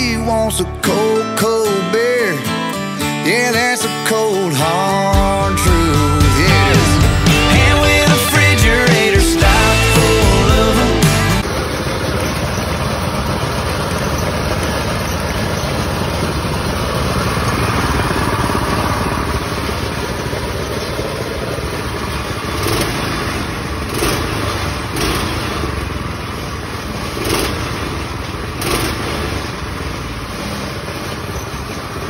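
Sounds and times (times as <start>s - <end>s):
go kart engines running: 0.0s - 32.0s.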